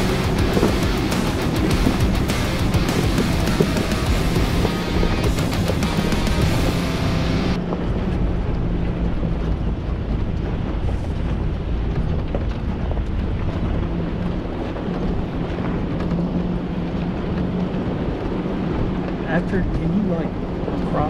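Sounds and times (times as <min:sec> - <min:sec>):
car engine running: 0:00.0 - 0:21.0
tyres rumbling on gravel: 0:00.0 - 0:21.0
wind buffeting microphone: 0:07.5 - 0:21.0.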